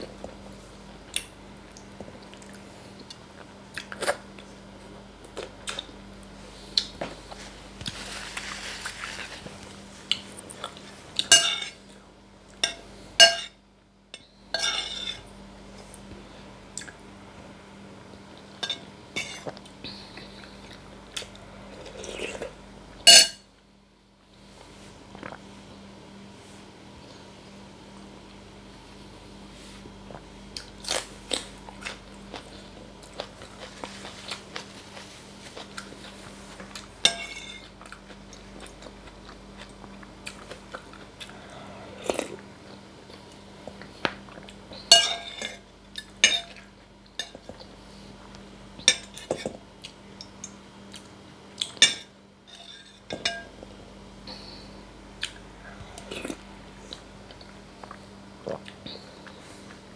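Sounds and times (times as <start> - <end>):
metal spoon clinking on bowl: 11.3 - 11.8.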